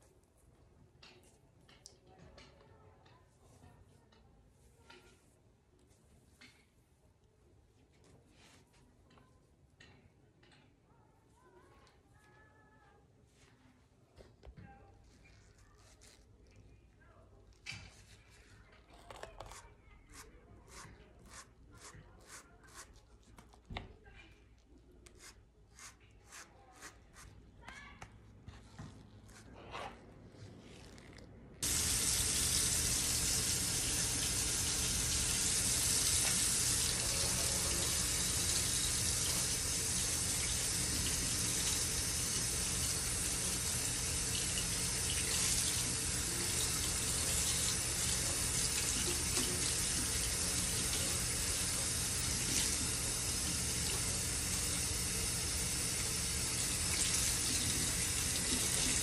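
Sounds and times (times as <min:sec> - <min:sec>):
faucet water splashing into sink: 0:31.6 - 0:59.0.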